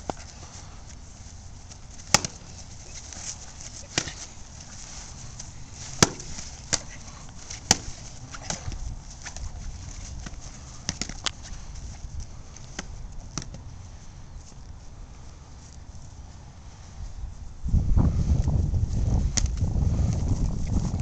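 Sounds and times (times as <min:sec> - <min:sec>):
stick and mace striking: 0:02.0 - 0:04.9, 0:05.8 - 0:09.4.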